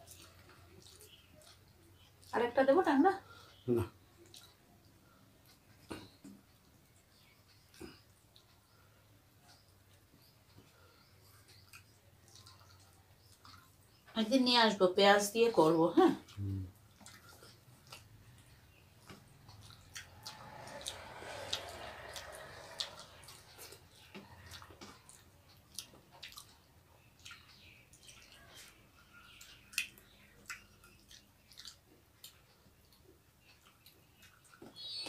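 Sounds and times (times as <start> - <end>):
people chewing: 0.0 - 2.4, 3.2 - 14.1, 16.2 - 35.0.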